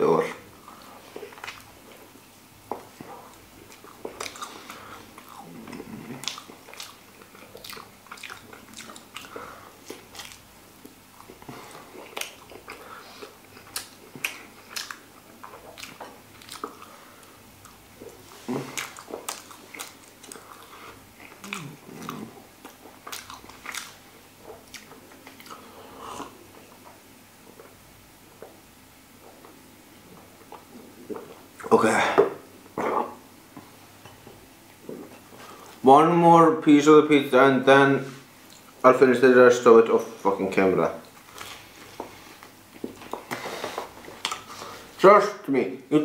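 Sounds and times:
person chewing pizza: 0.6 - 28.6, 29.2 - 31.7, 41.0 - 44.9.

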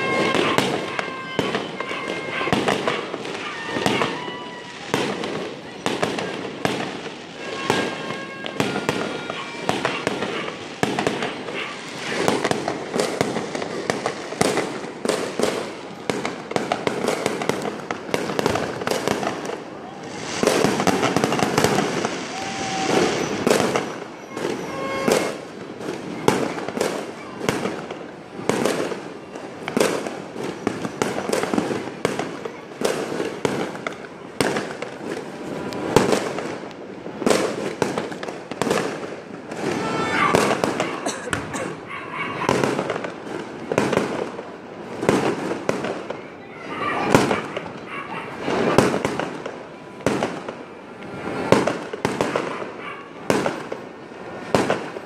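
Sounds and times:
fireworks crackle: 0.0 - 55.0
fireworks shell bursts: 20.1 - 25.5.

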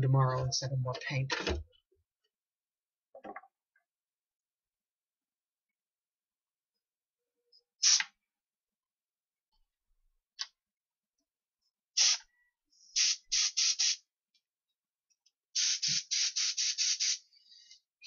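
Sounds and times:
spray gun hissing bursts: 12.0 - 12.2, 13.0 - 14.0, 15.6 - 17.4.

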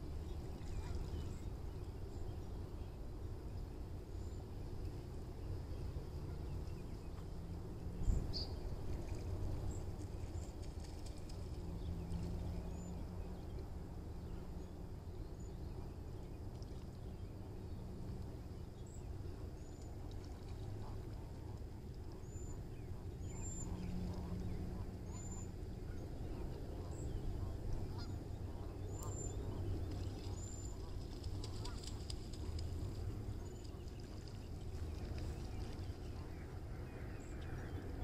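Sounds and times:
steady low rumble: 0.0 - 38.0
faint waterfowl calls: 0.6 - 1.4, 22.5 - 38.0.

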